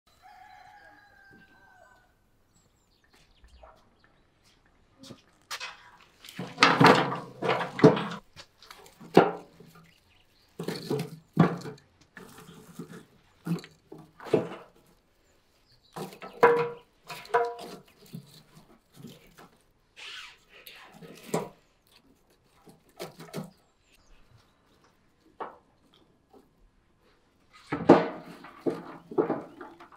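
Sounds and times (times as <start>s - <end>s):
dry twigs crunching and knocking: 5.1s - 14.9s.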